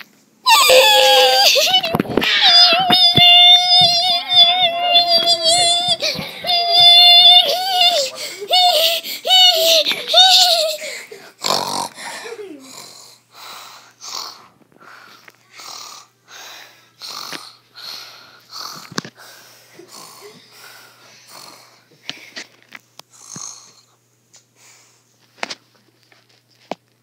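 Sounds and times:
person wheezy breathing: 5.9s - 22.5s.

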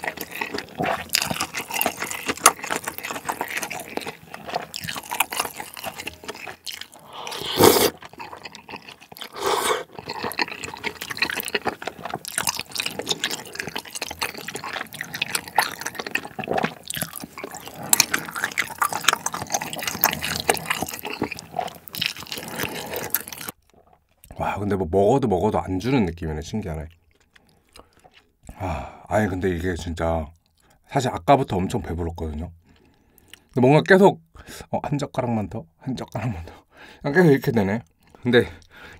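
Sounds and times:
slurping noodles: 0.0s - 24.0s.

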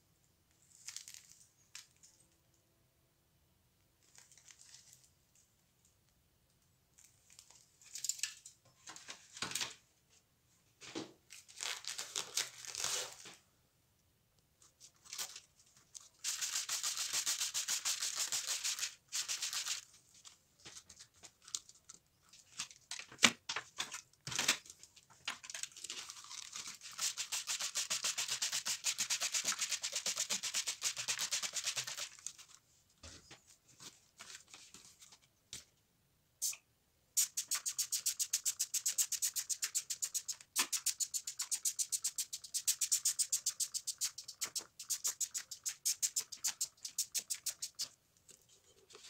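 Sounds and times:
spray bottle spritzing: 16.2s - 19.7s, 36.4s - 36.6s, 37.2s - 47.9s.

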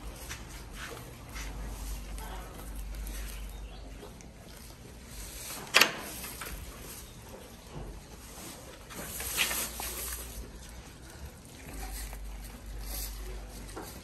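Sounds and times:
goat chewing: 0.0s - 14.0s
grass rustling and tearing: 9.0s - 14.0s.

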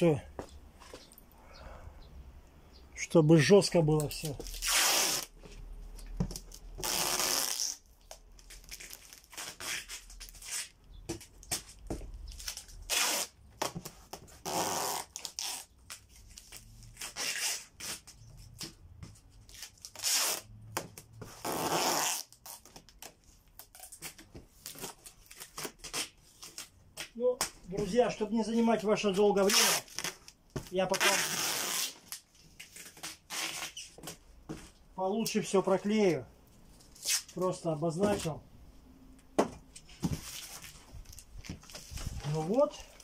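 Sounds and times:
tape crinkling and rubbing: 3.9s - 35.4s, 36.5s - 38.4s, 39.7s - 43.0s
packing tape ripping off roll: 4.1s - 5.4s, 6.3s - 10.8s, 12.3s - 18.7s, 19.5s - 27.1s, 29.4s - 34.2s.

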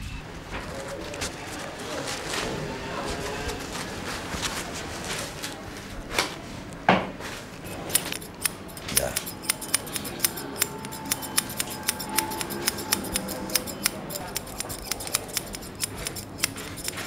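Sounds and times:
scissors snipping hair: 7.7s - 17.0s.

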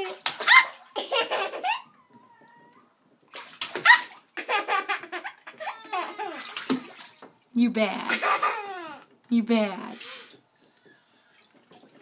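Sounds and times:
bathwater splashing: 0.0s - 12.0s
toddler laughing: 0.4s - 2.0s, 3.9s - 6.6s, 8.1s - 9.1s.

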